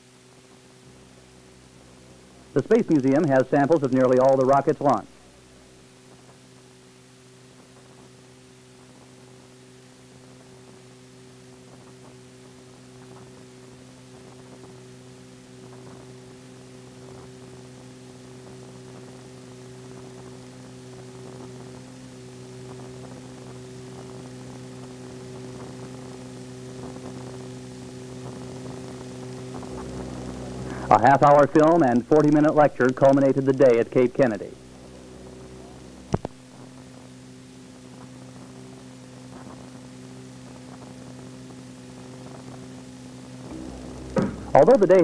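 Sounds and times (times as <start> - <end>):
electrical mains hum: 0.0 - 45.0.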